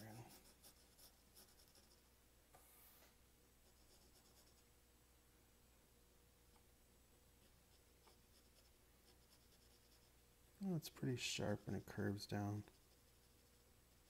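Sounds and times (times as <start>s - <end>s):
pencil scratching on paper: 0.0s - 2.1s, 3.6s - 4.6s, 7.4s - 10.1s, 10.7s - 14.0s.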